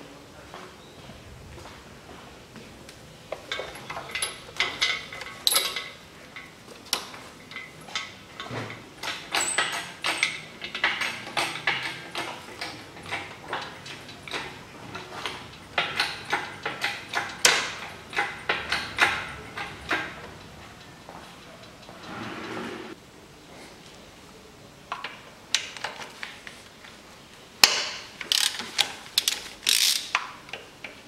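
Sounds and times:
metallic clicks and clanks: 0:03.3 - 0:22.6, 0:27.6 - 0:31.0.

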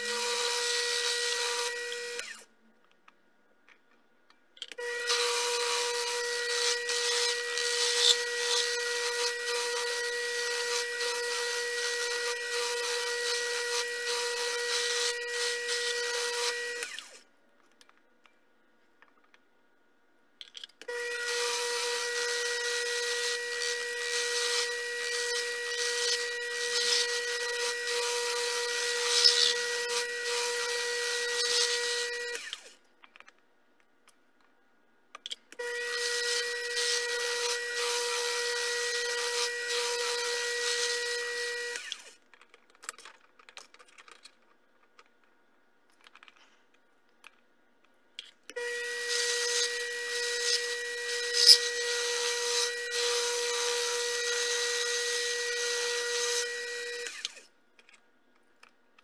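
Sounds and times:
lathe motor whine: 0:00.0 - 0:02.4, 0:04.8 - 0:17.2, 0:20.9 - 0:32.7, 0:35.6 - 0:42.1, 0:48.6 - 0:57.4.

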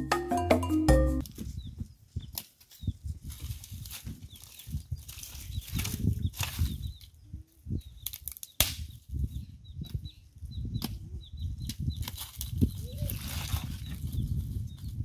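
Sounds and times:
sticks and leaves rustling: 0:01.2 - 0:09.3, 0:11.7 - 0:15.0
small bird chirping: 0:04.2 - 0:15.0.

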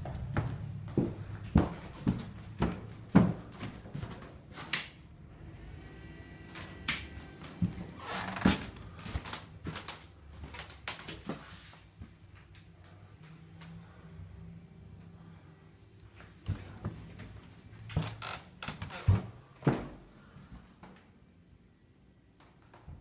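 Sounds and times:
footsteps on indoor floor: 0:00.0 - 0:04.8, 0:07.4 - 0:12.3, 0:16.1 - 0:21.0.

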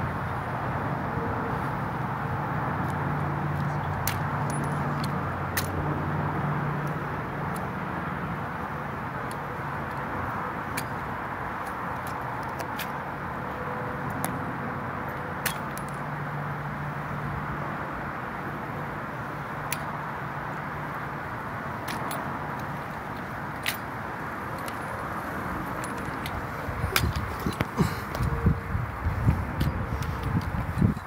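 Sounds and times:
outdoor background noise: 0:00.0 - 0:31.0
footsteps on asphalt: 0:20.8 - 0:31.0.

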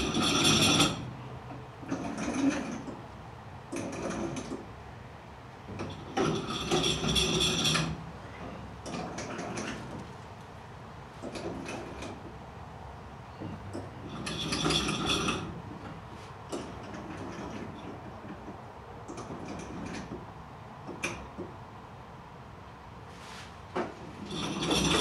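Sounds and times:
pulleys squeaking: 0:24.2 - 0:25.0.

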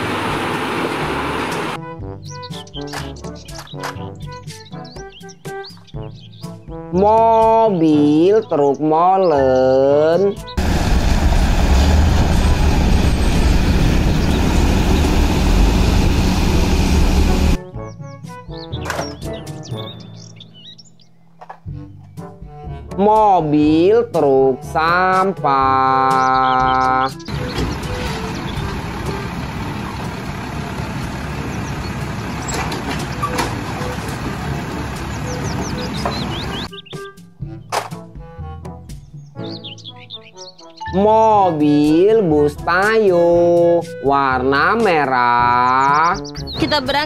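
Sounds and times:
diesel engine running: 0:00.0 - 0:01.8, 0:10.6 - 0:17.6, 0:27.3 - 0:36.7.

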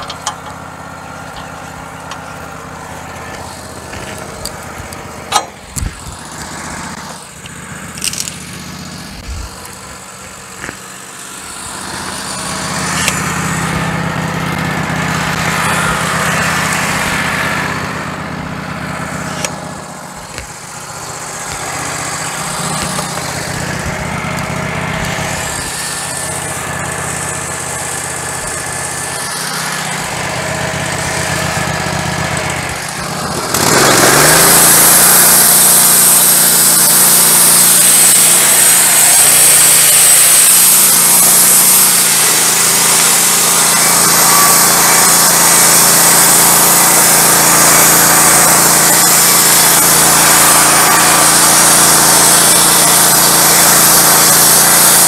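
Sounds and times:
band saw blade whining: 0:00.0 - 0:55.0
engine revving to full throttle: 0:00.0 - 0:55.0
gas engine idling: 0:00.0 - 0:55.0.

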